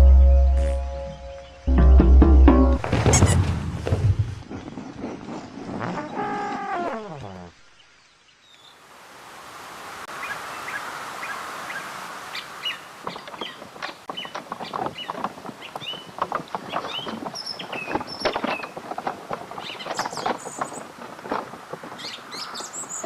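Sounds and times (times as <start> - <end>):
steady outdoor hiss: 0.0 - 23.0
birds chirping: 4.3 - 8.8, 10.1 - 18.8, 19.5 - 23.0.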